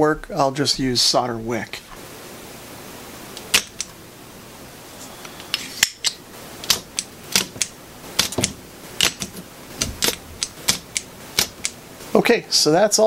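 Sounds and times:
desoldering pump clicks and snaps: 3.4s - 3.9s, 5.4s - 11.8s.

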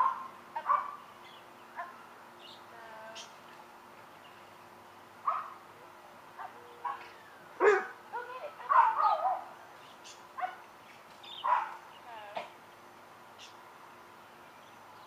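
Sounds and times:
young dog barking: 0.0s - 1.0s, 5.3s - 5.6s, 6.4s - 8.0s, 8.6s - 9.5s, 11.4s - 11.8s.

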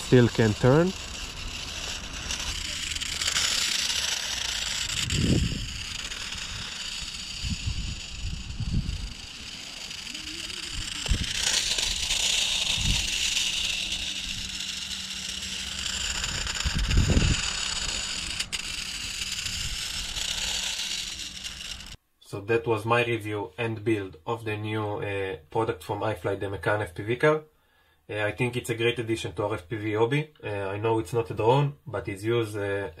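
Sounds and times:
toy car hiss and rattle: 0.0s - 22.0s.

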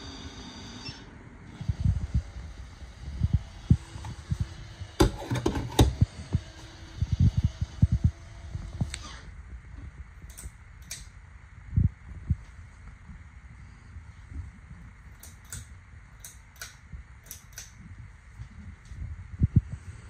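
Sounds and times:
faint steady hum: 0.0s - 20.0s
sharp clicks and knocks: 5.0s - 6.0s
pull-chain switch clicks: 10.3s - 11.1s.

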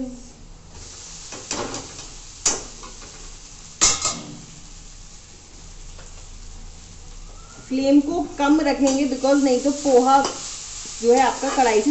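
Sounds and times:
steel utensils clanking on metal pan: 11.1s - 11.9s.

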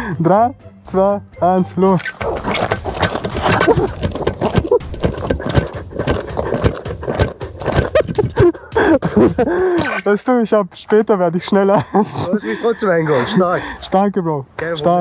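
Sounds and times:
thumps of feet hopping on asphalt: 2.1s - 9.5s
camera knocking: 2.2s - 8.5s.

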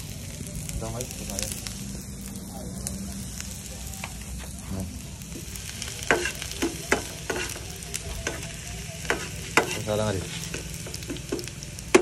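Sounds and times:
garlic sizzling in hot oil: 0.0s - 12.0s
metal spatula scraping a pan: 8.2s - 10.6s.

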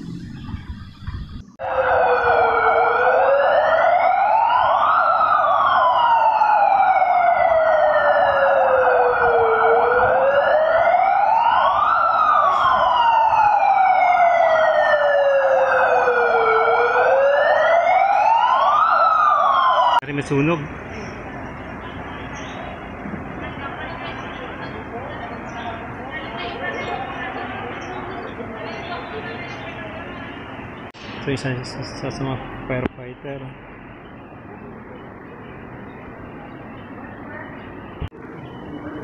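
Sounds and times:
steady harsh drone: 0.0s - 4.2s
alarm siren wailing: 0.0s - 20.1s.

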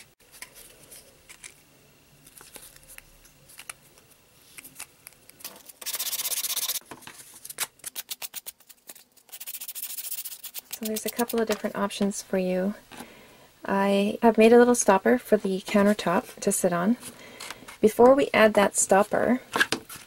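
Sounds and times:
sandpaper rubbing board edge: 9.3s - 11.4s.

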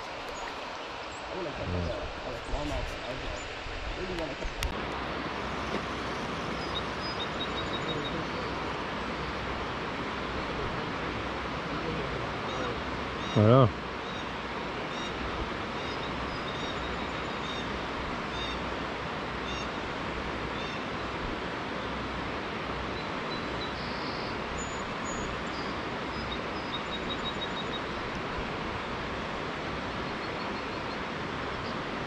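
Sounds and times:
steady rushing noise: 0.0s - 32.0s
bird chirps and trills: 6.4s - 8.6s, 23.0s - 28.1s.

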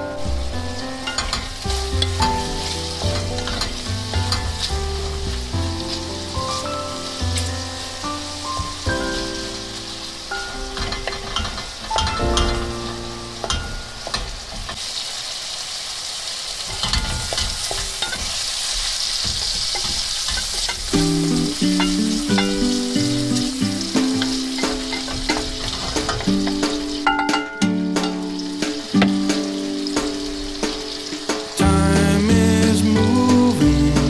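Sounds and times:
background music: 0.0s - 14.2s, 20.8s - 34.0s
chicken sizzling in a skillet: 0.0s - 34.0s
spatula scraping a pan: 5.9s - 7.6s, 10.3s - 15.0s, 16.6s - 31.6s.

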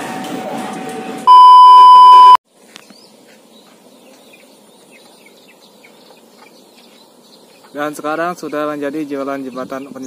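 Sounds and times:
test-tone beep: 1.3s - 2.4s.

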